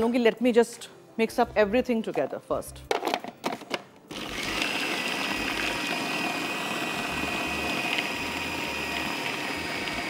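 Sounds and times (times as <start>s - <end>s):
food processor motor whine: 4.1s - 10.0s.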